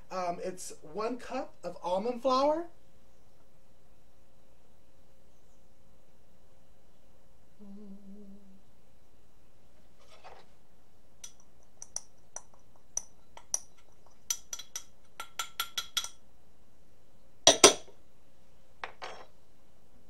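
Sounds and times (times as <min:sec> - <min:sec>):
ceramic bowl clinking on steel bowl: 0:11.2 - 0:16.2, 0:17.5 - 0:17.9.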